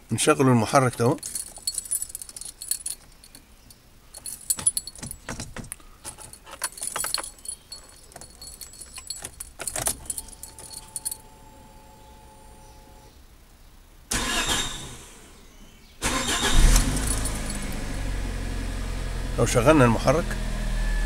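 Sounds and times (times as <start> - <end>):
car keys jangling: 0.8 - 11.6, 16.2 - 18.1
key clicking in ignition lock: 4.2 - 11.2, 16.5 - 17.9.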